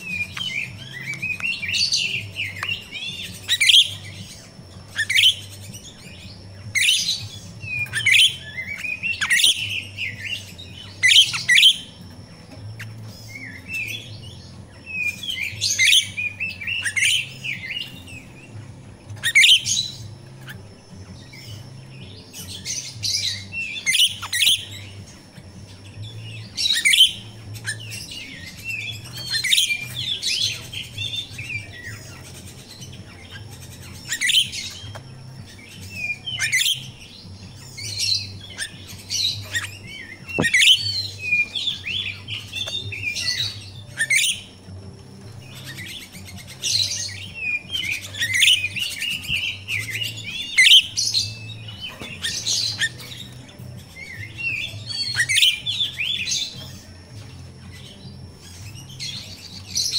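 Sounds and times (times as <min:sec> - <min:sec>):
starling chirping and chattering: 0:00.0 - 0:59.9.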